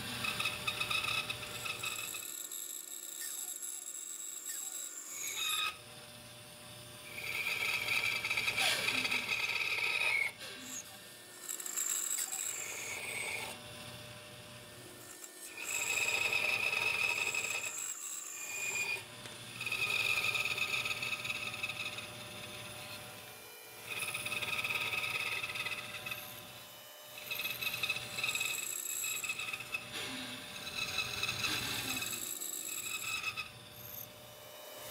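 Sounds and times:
tool scraping wood: 7.1s - 10.9s, 11.5s - 13.6s, 15.1s - 17.9s, 18.5s - 23.0s, 27.2s - 34.1s.

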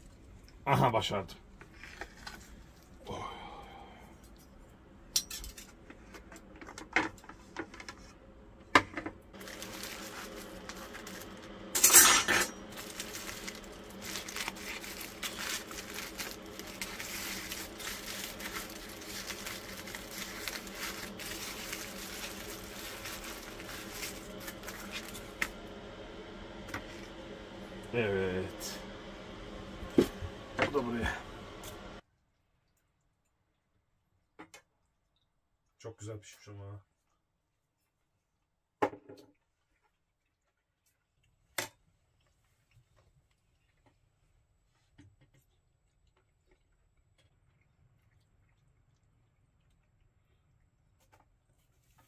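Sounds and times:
steady machine hum: 3.0s - 32.0s.

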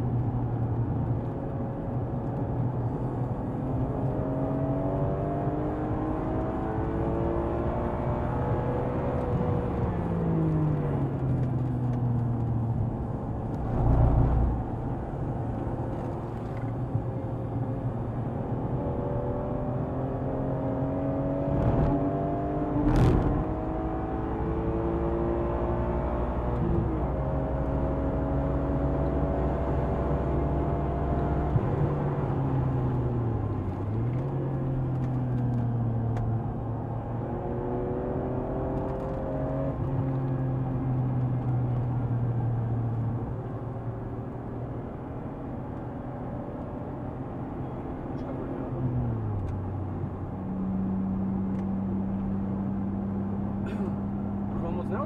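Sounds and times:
car engine revving: 13.4s - 15.4s.

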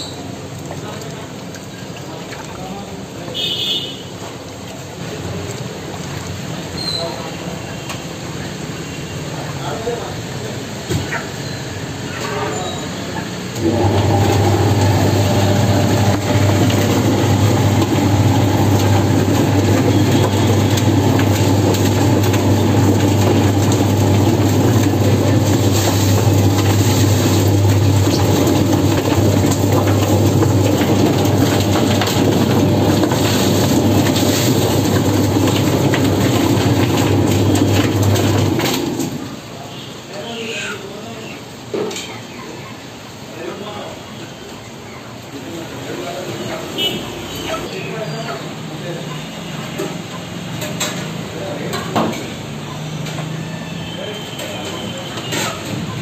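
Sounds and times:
motor hum: 13.6s - 39.0s
chicken rattling in spinning drum: 13.6s - 39.2s.

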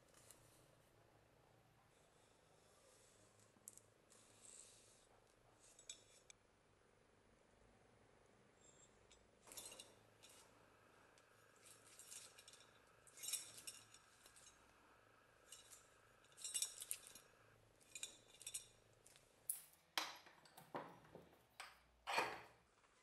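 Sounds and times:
metallic clinks and scrapes: 3.6s - 6.3s, 8.6s - 10.6s, 11.2s - 19.8s
knocks and scrapes in a vise: 20.5s - 22.6s.

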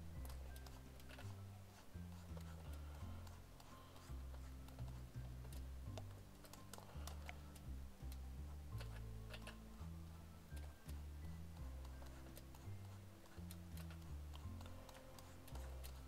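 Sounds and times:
quiet background music: 0.0s - 16.0s
computer keyboard and mouse clicks: 2.3s - 8.2s.

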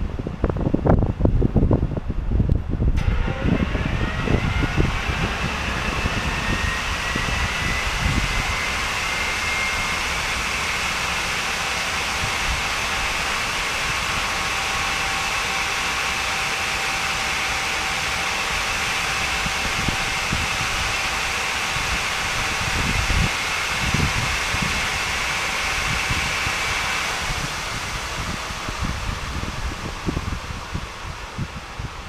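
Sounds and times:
low engine tone: 0.0s - 32.0s
wind buffeting microphone: 0.0s - 32.0s
turbojet engine whining hiss: 2.9s - 32.0s.

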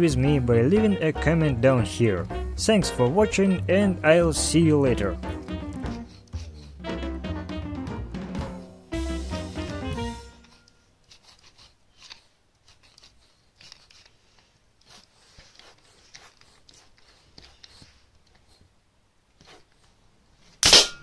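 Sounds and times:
cat paws scratching carpet: 10.3s - 18.7s, 19.4s - 20.6s.

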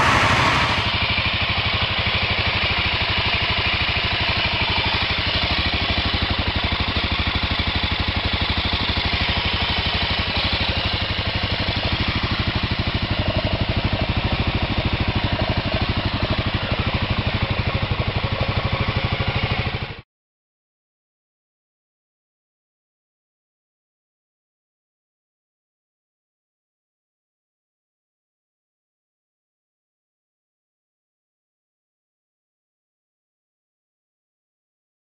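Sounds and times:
motorcycle engine idling: 0.0s - 20.0s.

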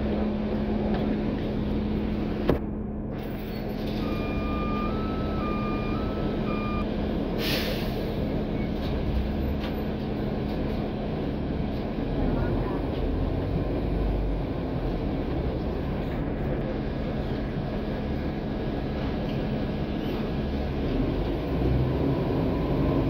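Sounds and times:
bus engine and road drone: 0.0s - 23.0s
two-tone electronic beeping: 4.0s - 6.8s.

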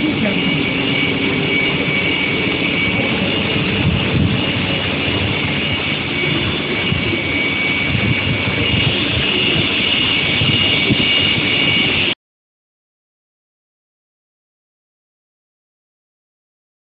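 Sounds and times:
high-pitched furnace whine: 0.0s - 12.2s
machine rumble: 0.0s - 12.2s.

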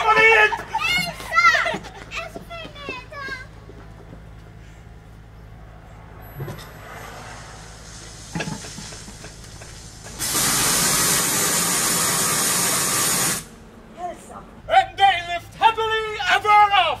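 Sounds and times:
loud static hiss: 7.2s - 14.0s.

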